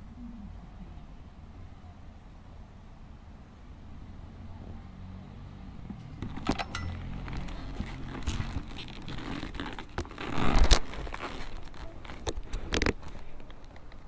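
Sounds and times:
handling noise on microphone: 0:05.8 - 0:14.0.

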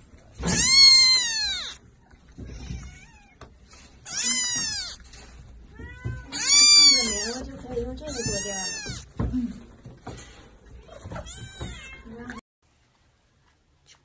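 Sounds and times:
kitten meowing loudly: 0:00.4 - 0:01.8, 0:04.0 - 0:05.0, 0:05.8 - 0:07.5, 0:08.1 - 0:09.1.

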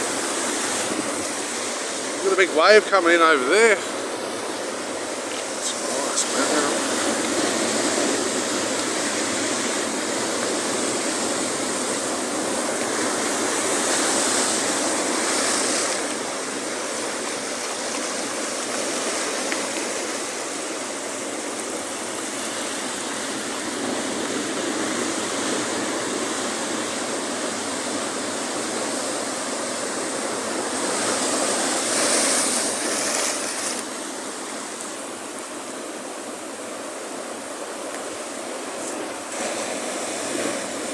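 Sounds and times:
surf breaking over rocks: 0:00.0 - 0:40.9.

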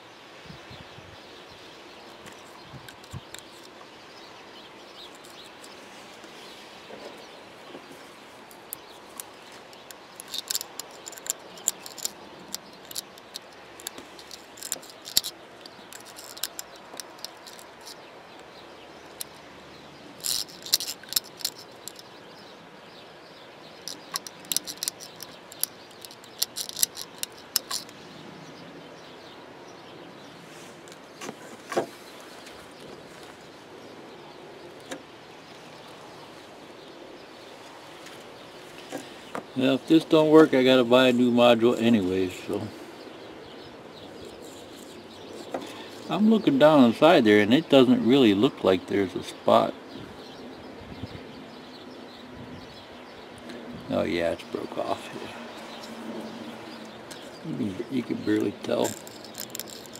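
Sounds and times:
pick scraping plastic socket: 0:09.2 - 0:18.0, 0:20.2 - 0:22.0, 0:23.9 - 0:27.9, 0:58.7 - 0:59.9.

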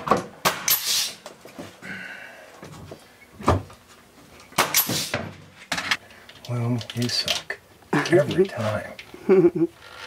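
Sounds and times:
nail gun firing into wood: 0:00.1 - 0:01.1, 0:04.6 - 0:05.3
air hiss: 0:00.7 - 0:01.2, 0:04.8 - 0:05.2.

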